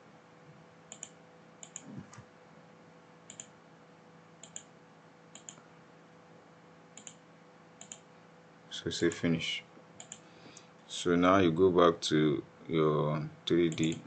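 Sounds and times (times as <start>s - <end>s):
faint electrical hum: 0.0s - 14.0s
computer mouse clicking: 0.9s - 2.2s, 3.3s - 3.6s, 4.4s - 4.7s, 5.3s - 5.6s, 7.0s - 7.2s, 7.8s - 8.1s, 10.0s - 10.3s.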